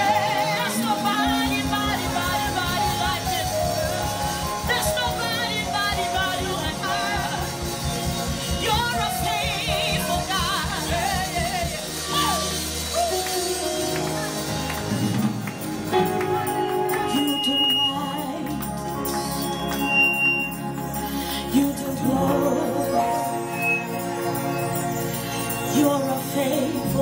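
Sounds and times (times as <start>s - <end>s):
woman singing into microphone: 0.0s - 7.9s, 8.5s - 12.4s, 16.2s - 18.9s, 21.3s - 24.0s, 25.6s - 27.0s
gospel band playing: 0.0s - 27.0s.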